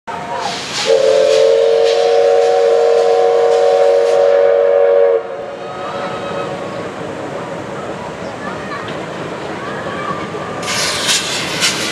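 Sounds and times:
steam locomotive whistle: 0.3 - 6.7.

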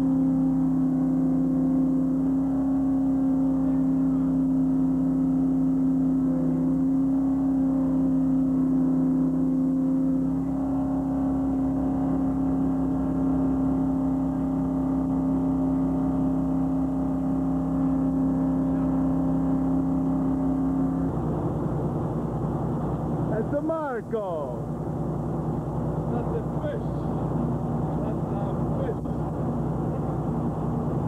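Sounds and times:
boat engine drone: 0.0 - 31.0.

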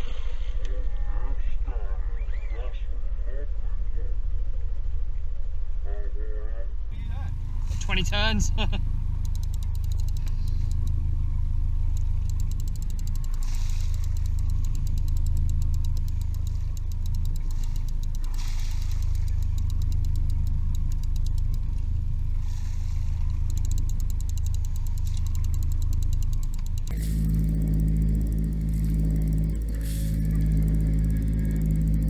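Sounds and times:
boat engine humming: 7.0 - 32.0.

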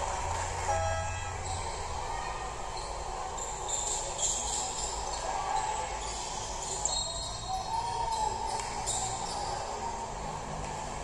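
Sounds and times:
crowd murmur: 0.0 - 11.0
sneaker squeaks: 0.7 - 2.0, 2.8 - 9.7.

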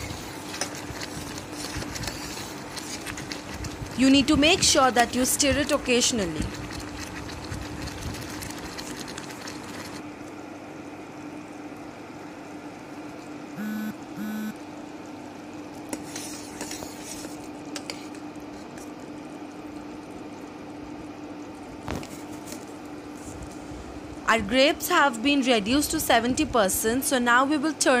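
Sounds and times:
steady hum: 0.0 - 22.2
jam boiling and bubbling: 0.0 - 27.3
short beeps: 13.6 - 14.6.

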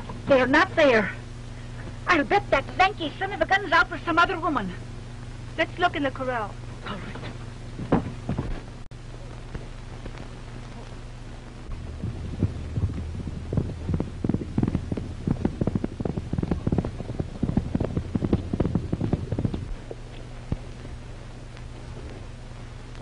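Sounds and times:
low film soundtrack hum: 0.0 - 23.0
horse hoofbeats galloping: 11.8 - 22.2.

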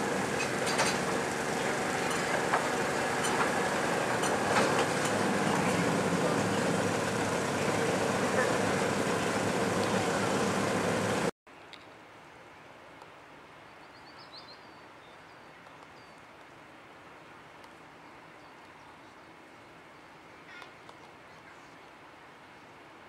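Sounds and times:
loud rushing noise: 0.0 - 11.3.

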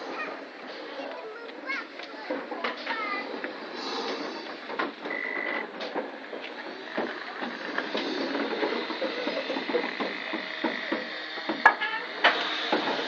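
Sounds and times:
steam hissing: 3.2 - 4.8, 6.6 - 13.0.

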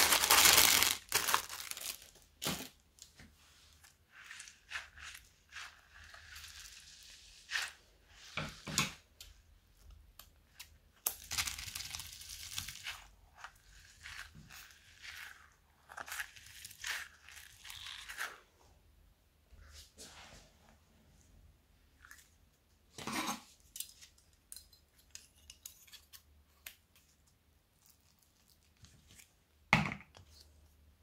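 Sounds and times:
stress ball squeezed and torn: 0.0 - 2.8
plastic bag crinkling: 0.0 - 3.1.

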